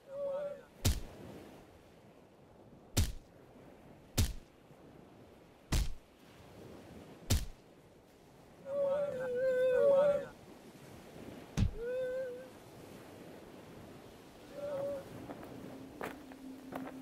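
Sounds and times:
sharp whacks: 0:00.8 - 0:01.2, 0:03.0 - 0:03.3, 0:04.2 - 0:04.5, 0:05.7 - 0:06.0, 0:07.3 - 0:07.6, 0:11.6 - 0:11.8.

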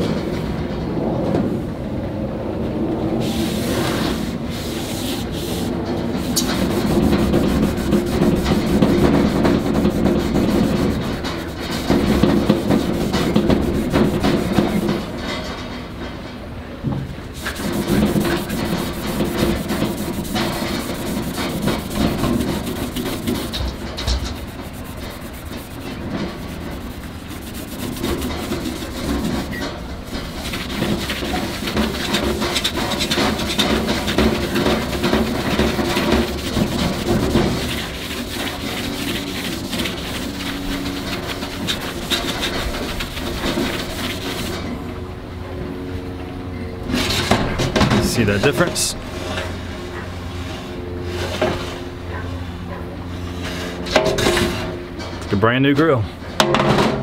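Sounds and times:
abrasive pad scrubbing metal: 0:03.2 - 0:15.5, 0:17.3 - 0:44.8, 0:46.9 - 0:49.6.

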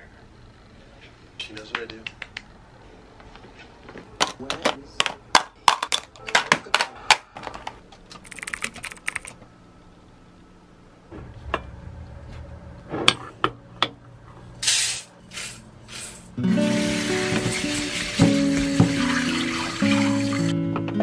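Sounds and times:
music: 0:16.4 - 0:21.0.

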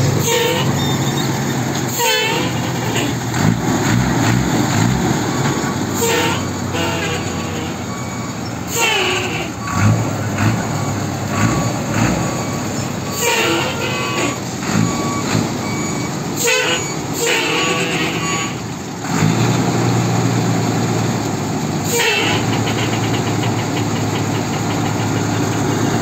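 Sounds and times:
truck engine running: 0:00.0 - 0:26.0
short squeals: 0:00.2 - 0:03.2, 0:06.0 - 0:18.6, 0:21.8 - 0:25.4.

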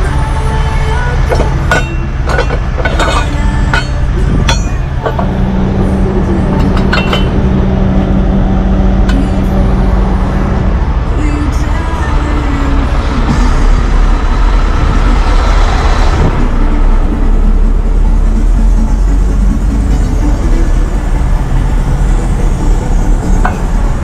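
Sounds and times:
diesel truck engine idling: 0:00.0 - 0:24.0
steel parts clanking: 0:01.2 - 0:08.1, 0:19.9 - 0:24.0.

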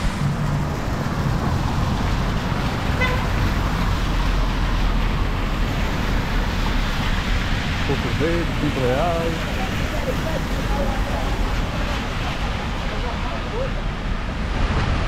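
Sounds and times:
road traffic: 0:00.0 - 0:15.0
car horn toot: 0:03.0 - 0:03.3.

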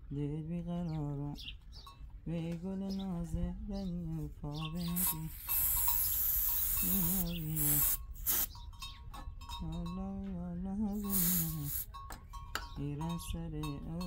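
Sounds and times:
man singing held notes: 0:02.2 - 0:05.8, 0:06.7 - 0:08.0, 0:09.6 - 0:11.8, 0:12.8 - 0:14.0
loud hiss: 0:05.0 - 0:08.5, 0:11.0 - 0:11.8.

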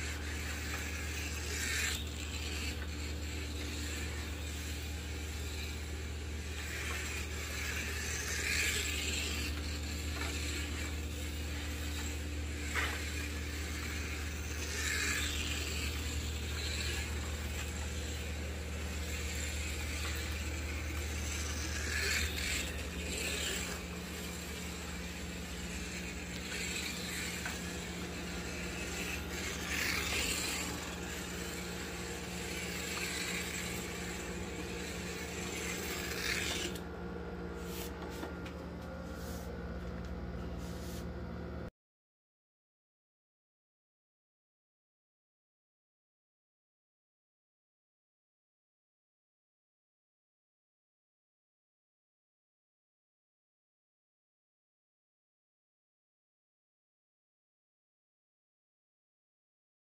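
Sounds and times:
guide braids rasping in slot: 0:00.0 - 0:36.9
slot car motor whirring: 0:00.0 - 0:38.6
steady low hum: 0:00.0 - 0:41.7.

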